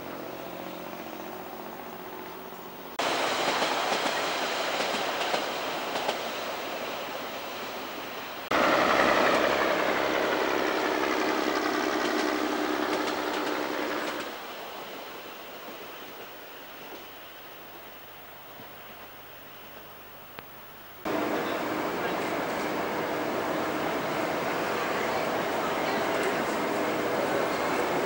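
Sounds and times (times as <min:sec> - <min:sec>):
diesel railcar engine: 0:00.0 - 0:14.9, 0:21.0 - 0:28.0
wheel clicks over rail joints: 0:08.6 - 0:14.3.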